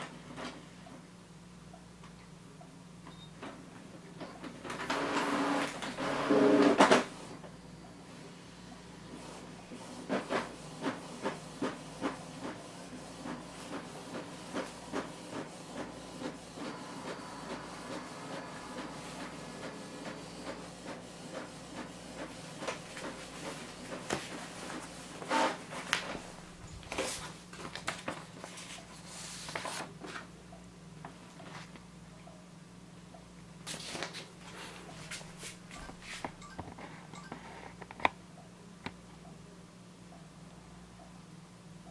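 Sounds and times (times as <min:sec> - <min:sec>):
printer humming: 0:03.4 - 0:30.1
paper rustling: 0:25.7 - 0:30.3, 0:33.7 - 0:34.3.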